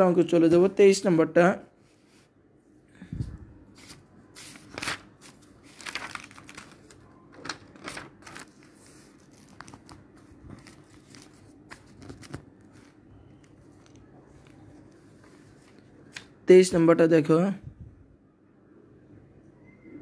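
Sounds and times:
paper pages rustling: 3.7 - 16.4.

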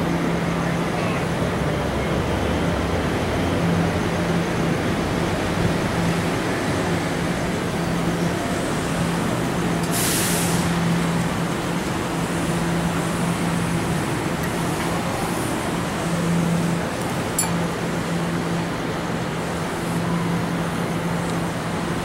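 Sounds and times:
air hiss: 9.9 - 10.8
electric train equipment hum: 10.6 - 22.0.

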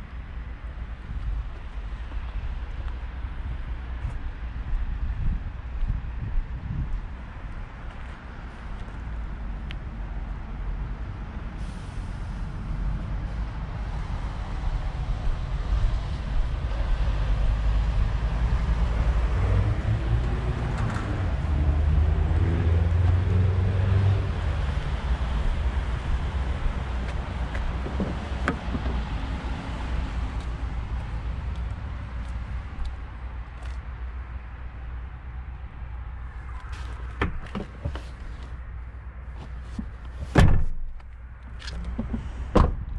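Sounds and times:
heavy vehicle engine rumble: 0.0 - 42.9
traffic noise: 0.0 - 42.9.

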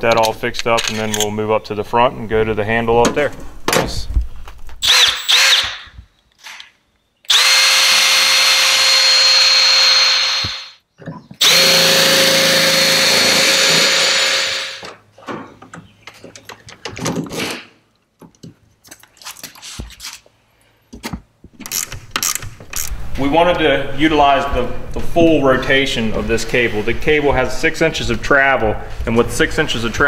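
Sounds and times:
parts clicking and knocking: 0.0 - 1.3, 20.9 - 23.0
cordless drill spinning: 4.8 - 6.0, 7.3 - 10.8, 11.4 - 14.9.

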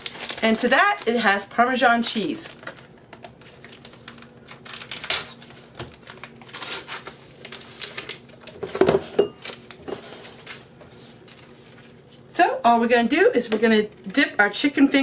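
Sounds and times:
paper packets rustling: 0.0 - 8.8, 9.4 - 12.2.

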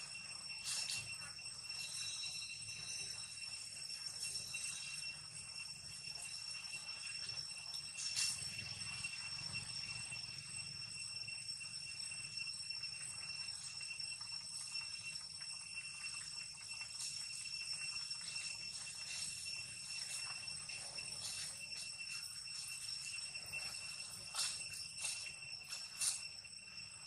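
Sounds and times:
insects shrilling: 12.3 - 27.0.

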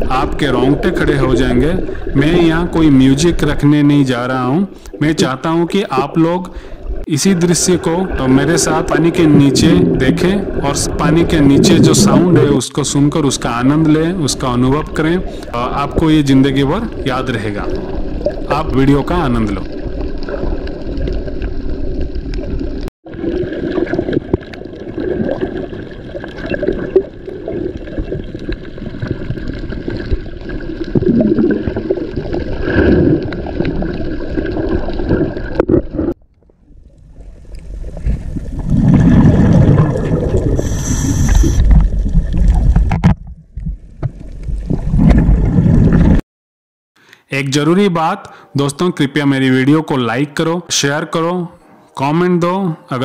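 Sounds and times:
underwater sloshing and gurgling: 0.0 - 46.2
low underwater rumbling: 7.9 - 46.2.

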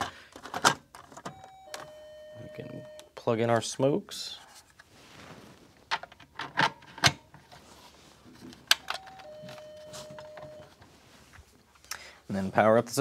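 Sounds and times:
faint steady tone: 1.2 - 3.3, 8.8 - 10.8.

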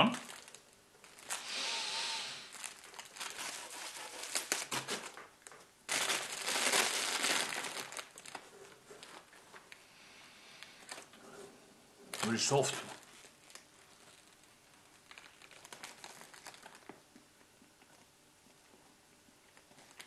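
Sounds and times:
plastic bag crinkling: 0.0 - 9.8, 10.8 - 11.2, 12.0 - 17.1, 19.6 - 20.0.

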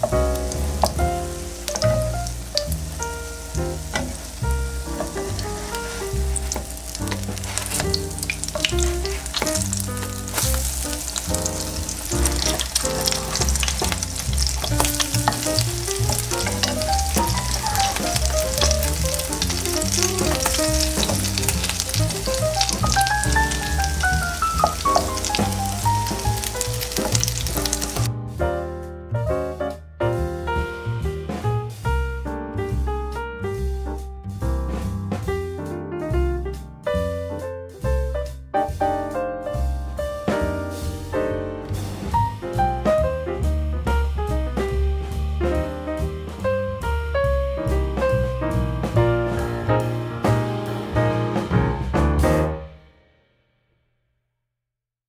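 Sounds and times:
pancakes sizzling in oil: 0.0 - 28.1
background music: 0.0 - 52.8.

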